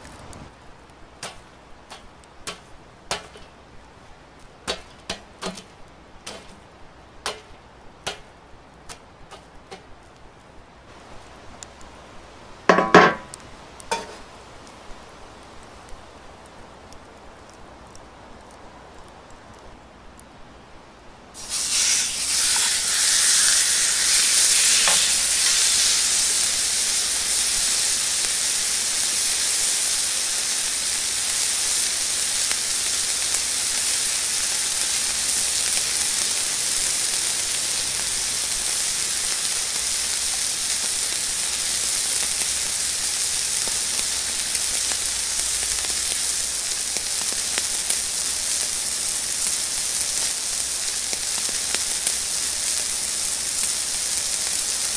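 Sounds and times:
steak sizzling in a pan: 21.4 - 54.9.

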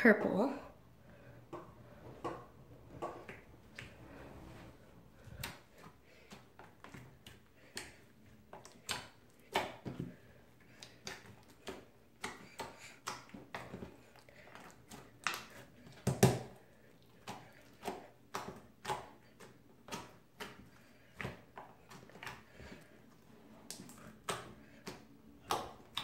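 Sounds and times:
slime squishing wet pops: 5.4 - 22.7, 23.6 - 26.0.

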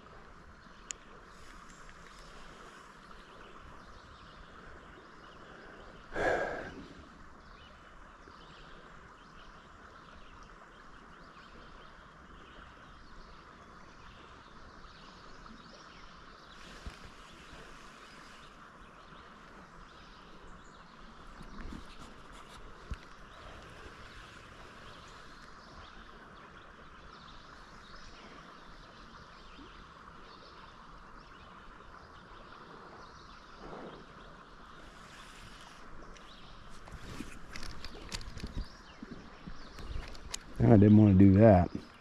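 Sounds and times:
calm river hiss: 0.0 - 42.0.

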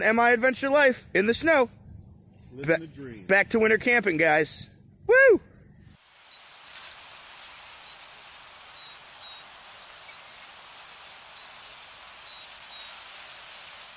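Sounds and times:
steady hiss: 0.0 - 13.9
faint high chirps: 5.9 - 6.8, 7.4 - 13.9.

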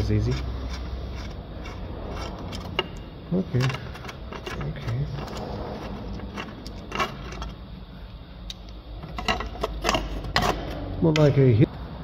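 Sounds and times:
steady low hum: 0.0 - 12.0
metal tools clinking: 2.5 - 7.6.

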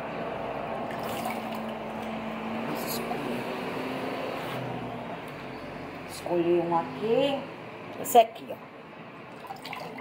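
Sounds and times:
water sloshing and dripping: 0.7 - 2.3, 9.3 - 10.0
water splashes: 0.8 - 2.1, 9.4 - 10.0.

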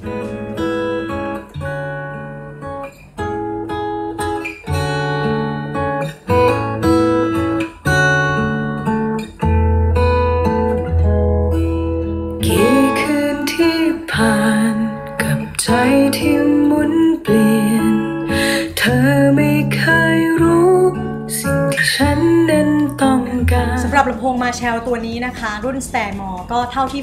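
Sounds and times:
acoustic guitar picked: 0.0 - 27.0
person singing: 12.4 - 24.5.

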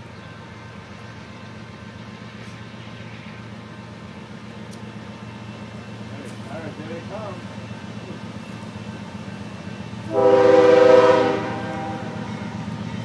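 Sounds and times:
diesel locomotive engine drone: 0.0 - 13.0.

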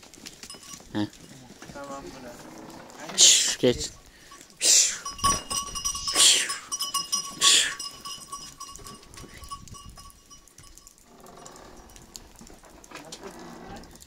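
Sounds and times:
faint steady ringing note: 4.0 - 11.0
man hissing shhh: 4.2 - 5.1.

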